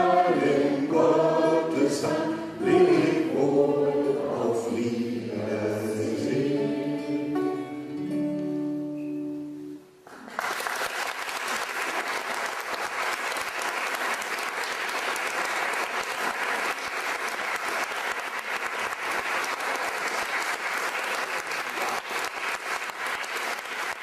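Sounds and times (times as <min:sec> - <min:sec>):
audience applauding: 0:10.0 - 0:24.0.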